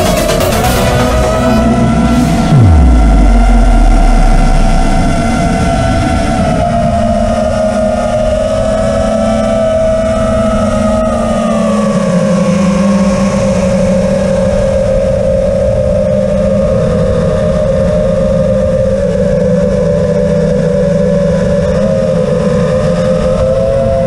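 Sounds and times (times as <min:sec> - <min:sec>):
drone motors buzzing whine: 0:00.0 - 0:13.0.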